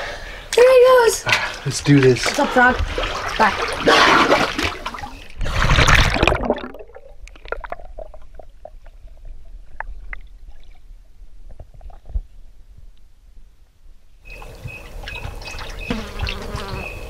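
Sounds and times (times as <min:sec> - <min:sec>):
water splashing: 0:01.3 - 0:11.0, 0:14.4 - 0:17.0
underwater bubbling and gurgling: 0:04.6 - 0:12.4.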